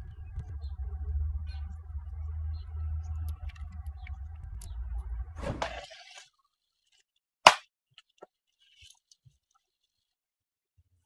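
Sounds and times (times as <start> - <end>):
low outdoor rumble: 0.0 - 6.2.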